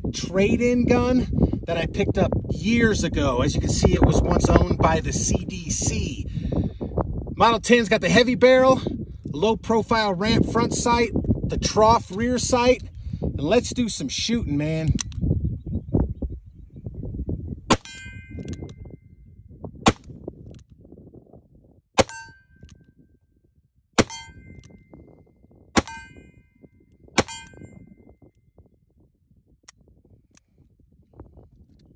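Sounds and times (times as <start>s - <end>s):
metallic ring of steel target: 17.7s - 18.9s, 22.0s - 22.7s, 24.0s - 25.0s, 25.8s - 26.6s, 27.2s - 28.0s.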